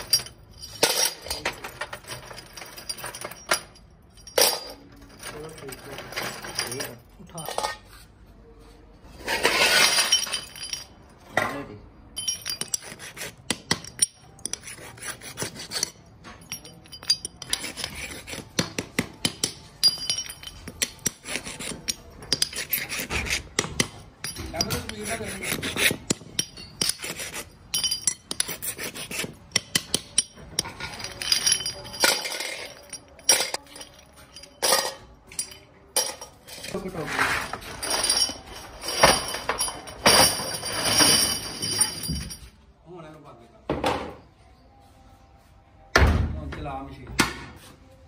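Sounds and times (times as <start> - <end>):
metallic clinks and knocks: 0.0 - 8.0, 9.8 - 11.5, 12.2 - 14.7, 15.7 - 22.8, 23.5 - 25.2, 26.0 - 28.6, 29.4 - 36.8, 37.4 - 42.6
hand file rasping on metal: 12.6 - 13.4, 14.4 - 16.0, 17.4 - 18.6, 21.0 - 23.7, 24.6 - 26.2
metal parts clattering into pan: 30.1 - 42.4.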